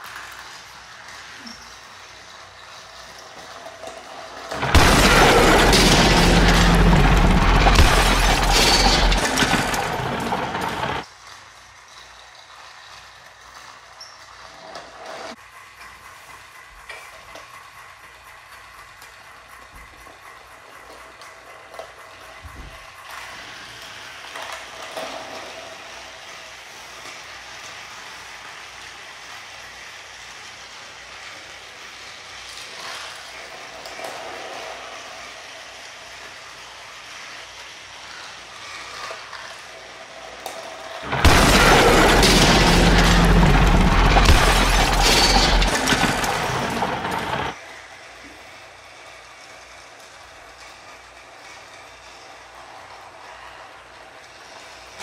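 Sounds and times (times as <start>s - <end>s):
toy train motors whirring: 0.0s - 55.0s
wheels clattering over track joints: 0.0s - 55.0s
loud crashing and shattering: 4.5s - 11.0s, 41.0s - 47.6s.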